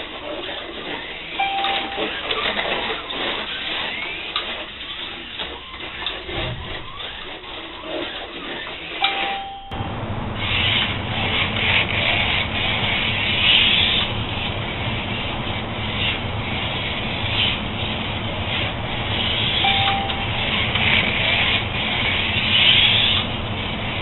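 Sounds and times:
guides rubbing in track slots: 0:00.0 - 0:09.4, 0:10.4 - 0:24.0
slot car motors humming: 0:00.0 - 0:24.0
short electronic beep: 0:01.4 - 0:02.4, 0:09.0 - 0:09.8, 0:19.6 - 0:20.6.

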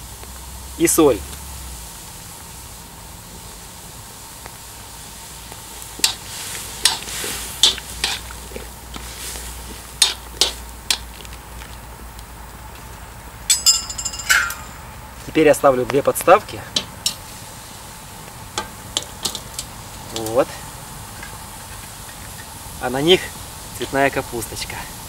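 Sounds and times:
simmering pot hiss: 0:00.0 - 0:25.0
metal spoon clinking and scraping pot: 0:07.6 - 0:08.3.

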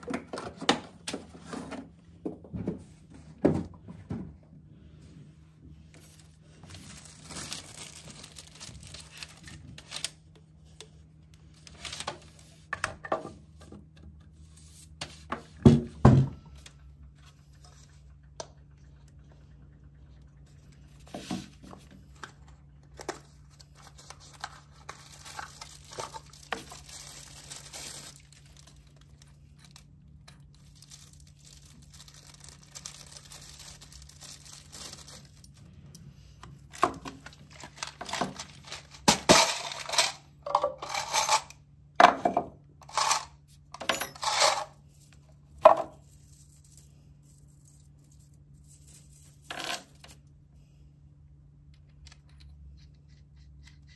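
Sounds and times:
plastic packaging crinkling and tearing: 0:06.1 - 0:10.3, 0:23.0 - 0:35.6, 0:37.0 - 0:40.0.

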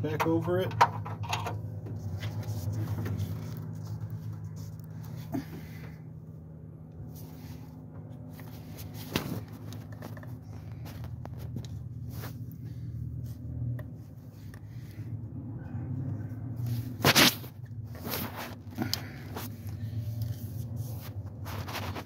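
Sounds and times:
steady low hum: 0:00.0 - 0:22.0
hands rubbing and handling plastic: 0:07.0 - 0:15.2, 0:16.4 - 0:22.0.

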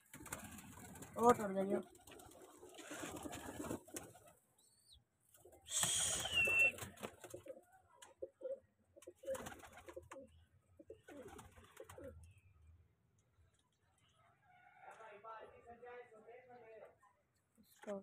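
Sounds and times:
wings flapping: 0:00.0 - 0:04.4, 0:05.3 - 0:08.1, 0:09.1 - 0:10.2, 0:11.0 - 0:12.2
pigeons cooing: 0:05.6 - 0:12.2.

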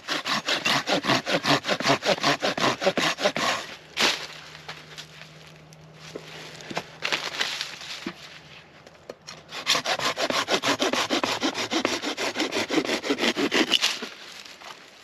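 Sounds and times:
hand saw cutting branch: 0:00.0 - 0:04.2, 0:09.5 - 0:14.2.

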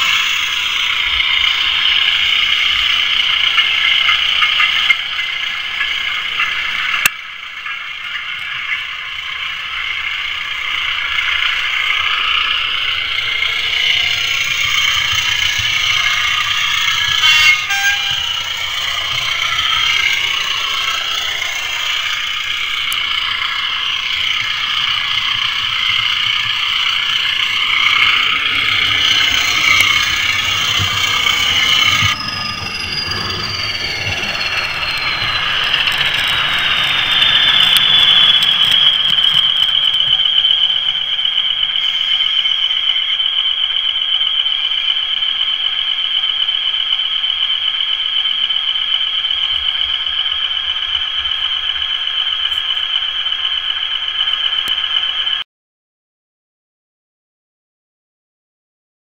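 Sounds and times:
high-pitched whistle: 0:00.0 - 0:55.4
model train wheels and motor: 0:00.0 - 0:55.4.

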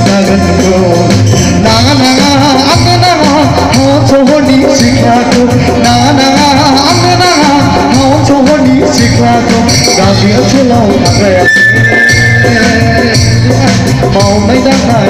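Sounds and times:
live band playing: 0:00.0 - 0:15.0
repeating bass line: 0:11.2 - 0:14.0.

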